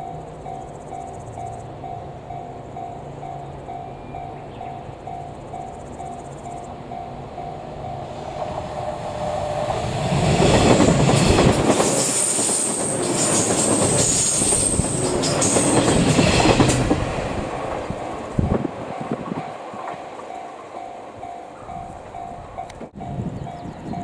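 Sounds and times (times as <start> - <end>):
train wheels clacking over rails: 8.0 - 23.0.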